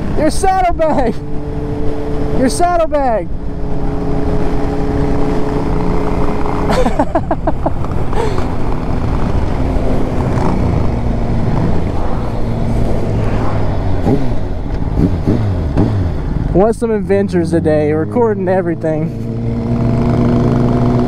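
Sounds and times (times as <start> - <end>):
wind rushing over microphone: 0.0 - 16.6
motorcycle engines running: 0.0 - 21.0.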